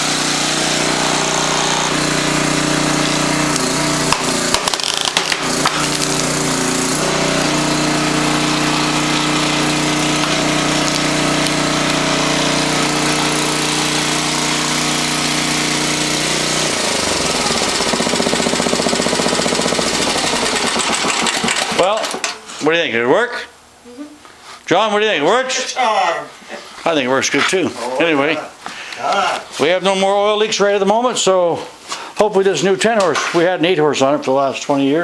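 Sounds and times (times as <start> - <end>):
small engine running: 0.0 - 21.8.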